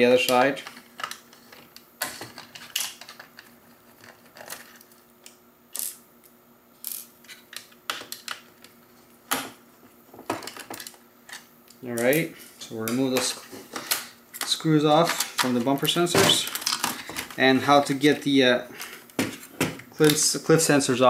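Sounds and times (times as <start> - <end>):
plastic and metal parts handled: 0.2 - 5.0, 12.8 - 18.0.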